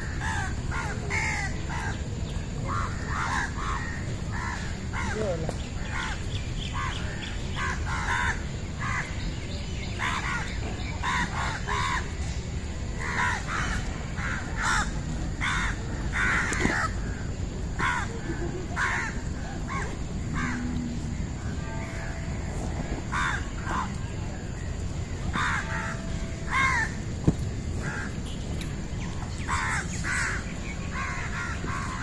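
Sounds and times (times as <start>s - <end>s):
crows cawing: 0.0s - 2.0s, 2.7s - 6.2s, 7.6s - 9.1s, 13.0s - 17.2s, 17.8s - 20.7s, 23.1s - 24.0s, 25.3s - 27.0s, 27.8s - 28.2s, 29.5s - 32.0s
low outdoor rumble: 0.0s - 32.0s.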